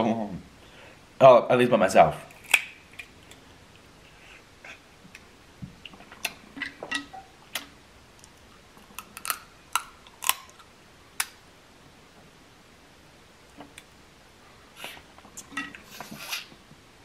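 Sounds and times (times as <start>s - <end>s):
crab shells cracking by hand: 2.3s - 3.4s, 8.9s - 10.6s.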